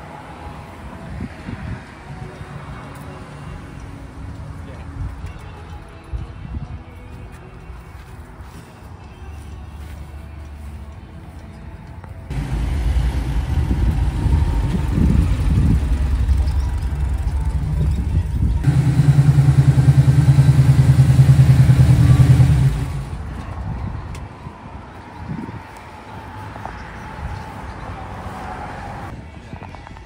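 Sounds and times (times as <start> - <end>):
car engine pulling away: 12.3 - 23.2
engine with rapid exhaust pulse: 12.3 - 23.4.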